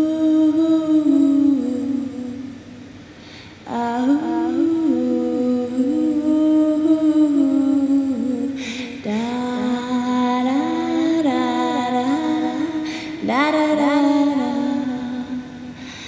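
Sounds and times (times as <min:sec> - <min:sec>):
breath: 0:03.1 - 0:03.6, 0:08.6 - 0:09.0, 0:12.8 - 0:13.2, 0:15.8 - 0:16.0
person humming: 0:03.7 - 0:15.7.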